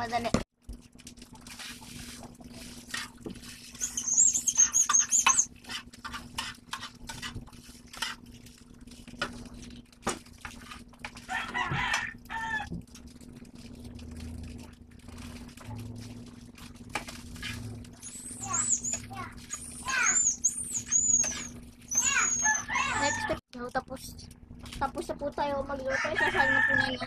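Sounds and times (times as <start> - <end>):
metal spatula scraping a frying pan: 2.8 - 8.2
high warbling bird call: 3.8 - 5.5, 18.0 - 23.4.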